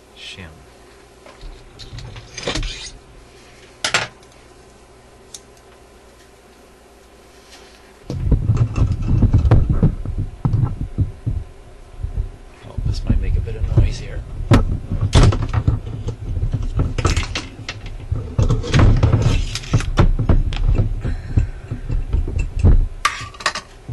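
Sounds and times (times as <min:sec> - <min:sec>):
shim crinkling in hand: 0:03.2 - 0:08.0.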